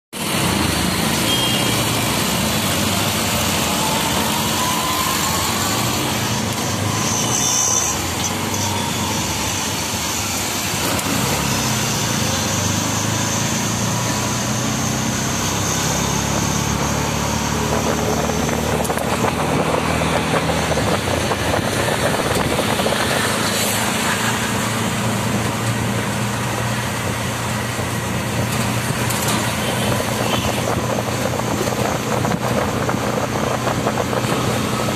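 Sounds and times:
road and traffic noise: 0:00.1 - 0:34.9
wind noise: 0:17.2 - 0:34.9.

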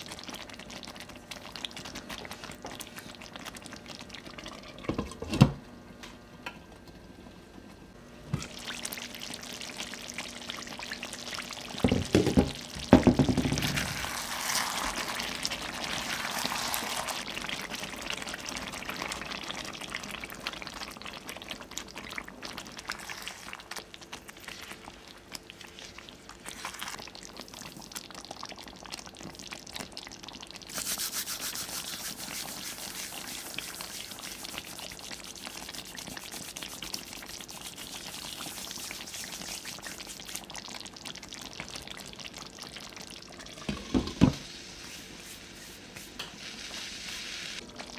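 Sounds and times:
sauce bubbling and sizzling in pan: 0:00.0 - 0:05.2, 0:08.3 - 0:47.9
spatula stirring: 0:30.7 - 0:40.4.

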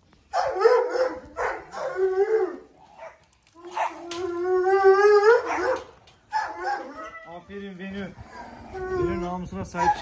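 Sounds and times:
dog whining barks: 0:00.3 - 0:04.3, 0:05.1 - 0:07.2
dog howling: 0:00.4 - 0:05.8, 0:06.4 - 0:07.3.

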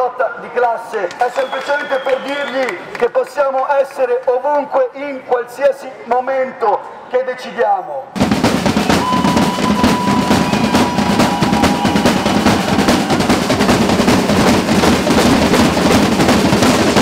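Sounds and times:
snare and marching drums: 0:08.2 - 0:17.0.

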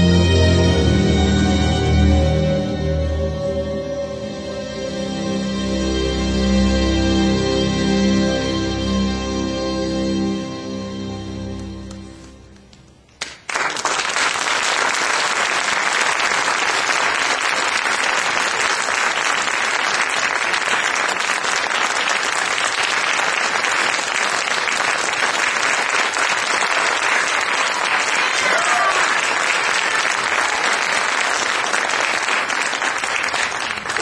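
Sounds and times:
instrumental music: 0:00.0 - 0:13.0
audience applauding: 0:13.2 - 0:34.0.

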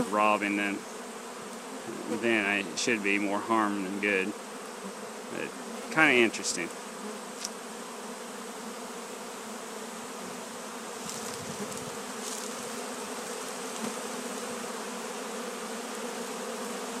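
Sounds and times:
honeybees buzzing: 0:00.0 - 0:17.0.

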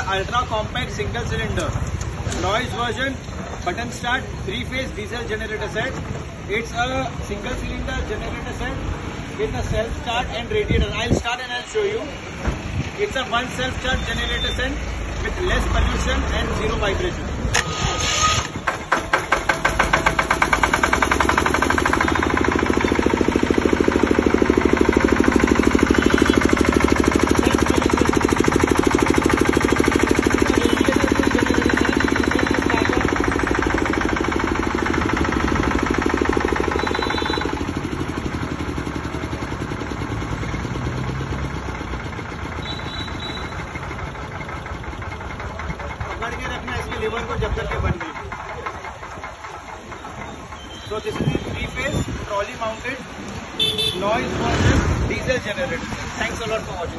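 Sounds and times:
diesel generator running: 0:12.3 - 0:54.0.

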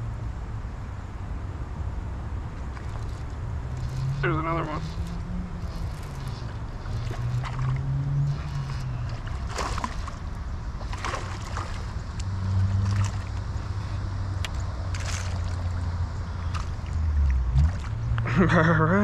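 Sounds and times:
steady low hum: 0:00.0 - 0:19.0
fish splashing at water surface: 0:05.7 - 0:12.0, 0:12.6 - 0:13.5, 0:14.9 - 0:15.7.

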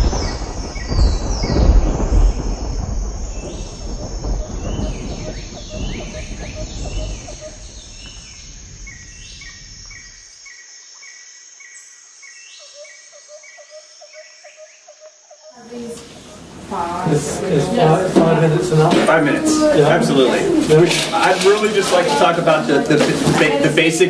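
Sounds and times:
deep rumble: 0:00.0 - 0:10.2, 0:16.2 - 0:21.7
falling sweeps: 0:15.8 - 0:23.9.

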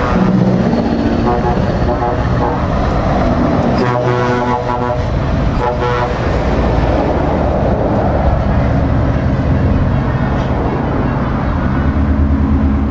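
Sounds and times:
diesel lorry engines rumbling: 0:00.0 - 0:12.9
horn blast: 0:01.2 - 0:02.8, 0:03.8 - 0:06.5.

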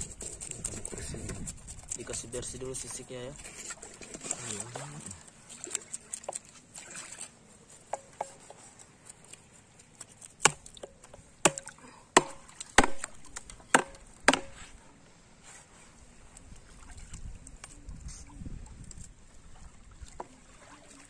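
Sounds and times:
knife chopping fish on wood: 0:11.4 - 0:14.5.

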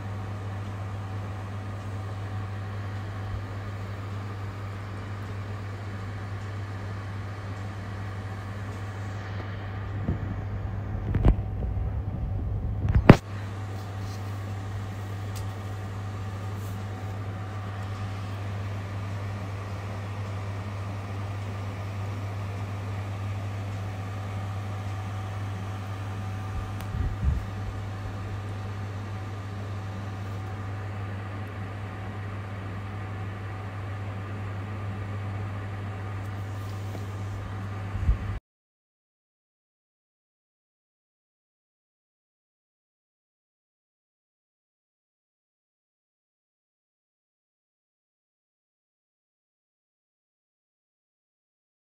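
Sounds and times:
steady low hum: 0:00.0 - 0:38.4.

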